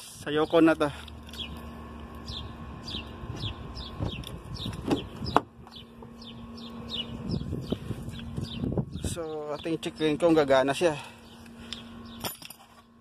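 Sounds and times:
birds chirping: 0.2s - 13.0s.

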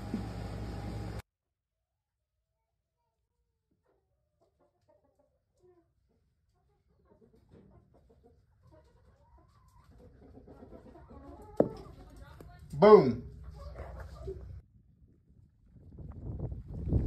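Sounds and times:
hen clucking: 4.4s - 12.2s.

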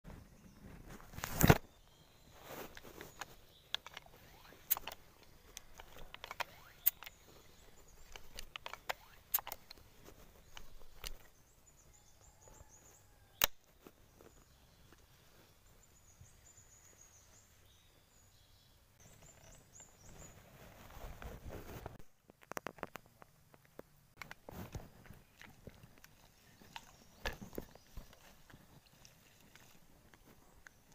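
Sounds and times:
bird chirping: 0.1s - 21.1s, 24.6s - 30.9s
sharp clicks and knocks: 8.0s - 11.3s.

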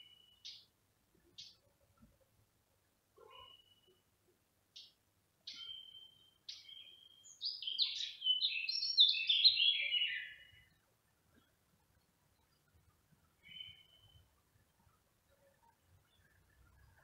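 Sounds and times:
songbird singing: 0.0s - 17.0s.

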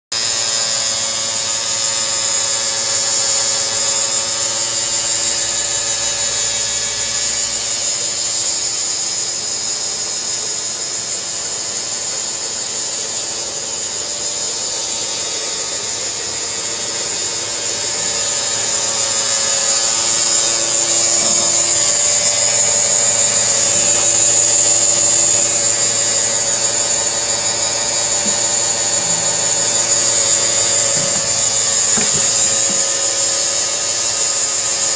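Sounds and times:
machine whirring with high whine: 0.1s - 34.9s.

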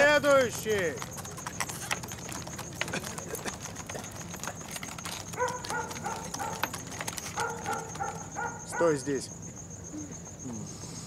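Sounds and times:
dog whining: 1.4s - 9.0s.

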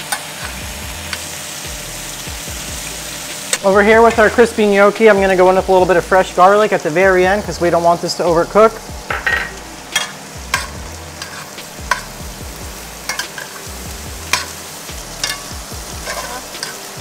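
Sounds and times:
food sizzling in a pan: 0.0s - 17.0s
utensil knocking against pan: 9.1s - 10.7s.

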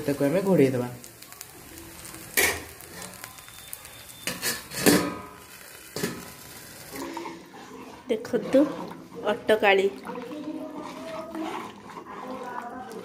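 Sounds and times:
food sizzling in oil: 0.0s - 13.0s
metal plate clanking on pan: 4.3s - 5.4s.

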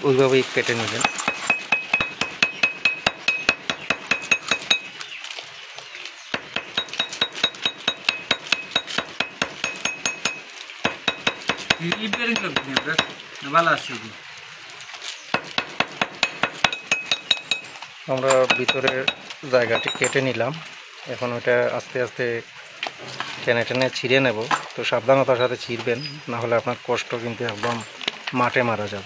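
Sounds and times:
hammer tapping steel blade: 6.6s - 13.2s.

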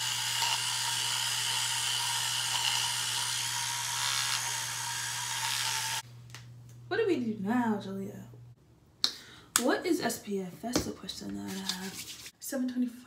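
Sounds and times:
electric toothbrush buzzing: 0.0s - 6.0s.

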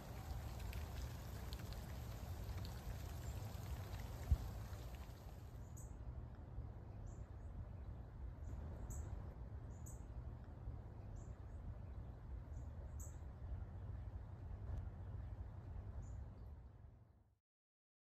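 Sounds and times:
low rain rumble: 0.0s - 5.7s
patter of raindrops: 0.0s - 16.6s.

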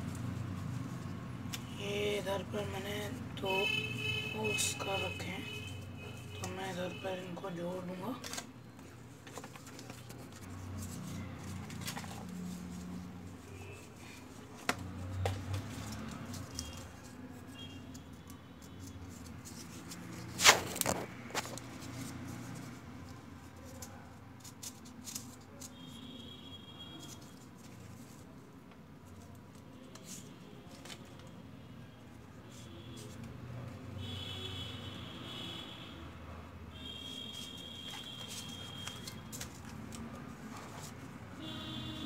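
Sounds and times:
cardboard parts clicking and knocking: 9.2s - 10.8s, 14.5s - 16.8s.

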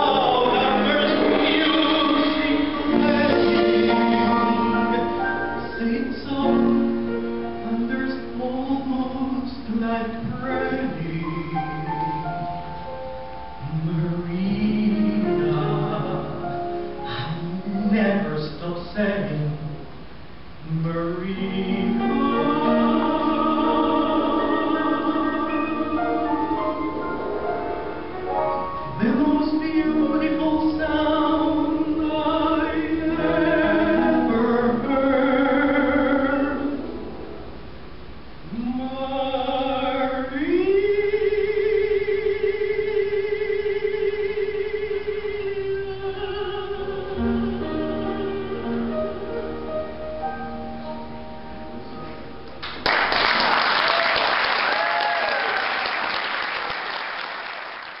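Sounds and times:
band accompaniment: 0.0s - 6.0s
tenor singing into a microphone: 0.0s - 12.6s, 13.6s - 19.9s, 20.6s - 27.4s, 28.9s - 37.1s
music accompaniment notes: 0.0s - 20.0s, 21.3s - 39.8s, 40.5s - 53.1s
audience applause: 52.6s - 58.0s
crowd cheering: 52.9s - 58.0s.

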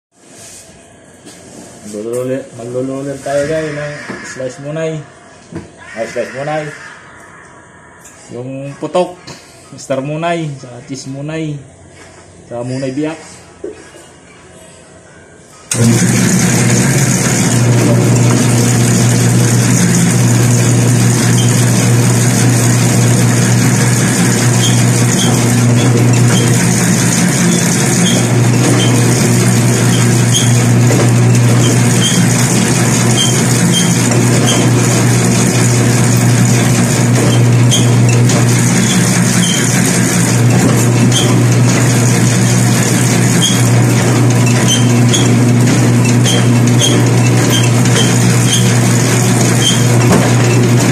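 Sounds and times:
dough roller motor hum: 15.7s - 50.9s.

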